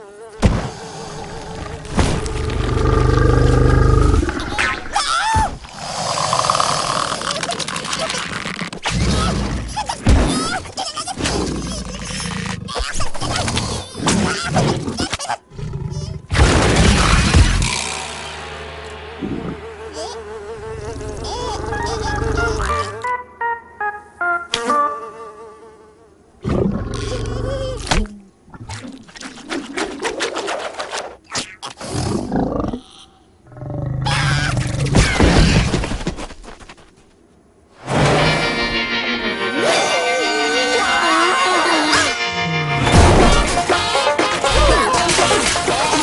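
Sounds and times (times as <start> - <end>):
cartoon fly buzz wobbling: 0.0 - 0.5, 19.2 - 23.1, 24.5 - 26.1
cartoon animal roaring and growling: 0.7 - 7.6, 19.2 - 23.0, 31.8 - 35.2
loud crash: 16.4 - 20.3, 37.8 - 38.6.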